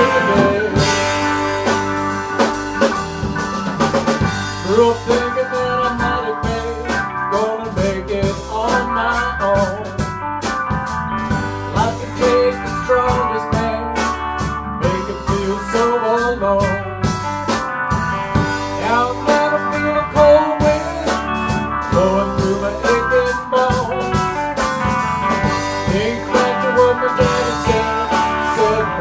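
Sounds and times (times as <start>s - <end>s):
blues-rock band instrumental: 0.0s - 29.0s
electric lead guitar: 0.0s - 29.0s.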